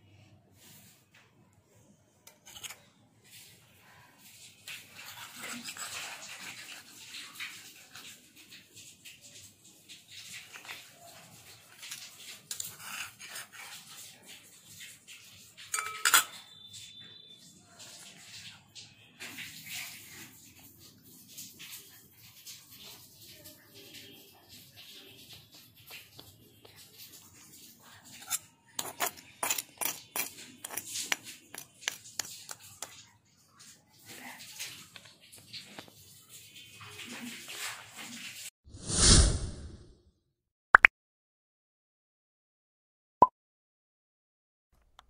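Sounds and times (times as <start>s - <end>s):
metal dishes clinking and scraping: 2.2s - 3.0s, 15.5s - 16.9s, 28.0s - 33.0s
utensils clicking and scraping dishes: 2.2s - 17.1s, 24.8s - 36.1s
dish clanging and ringing: 15.7s - 16.5s.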